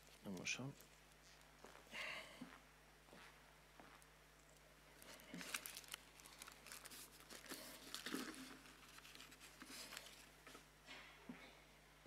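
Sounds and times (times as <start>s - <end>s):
paper rustling: 5.0s - 10.6s.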